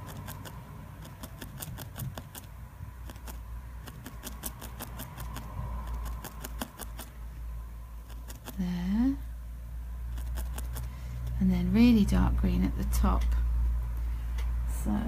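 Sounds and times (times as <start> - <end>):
felting needle stabbing wool: 0.0 - 7.2, 8.0 - 8.7, 10.1 - 10.9.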